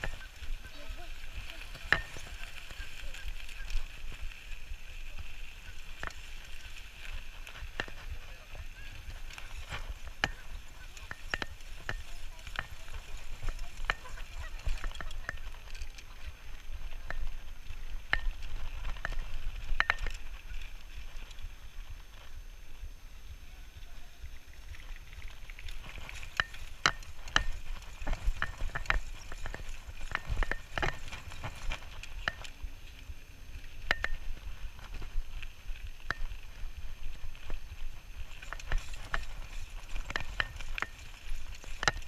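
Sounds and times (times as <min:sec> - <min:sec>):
bicycle tyres rumbling on dirt: 0:00.0 - 0:42.0
bike clicks and rattles: 0:00.0 - 0:42.0.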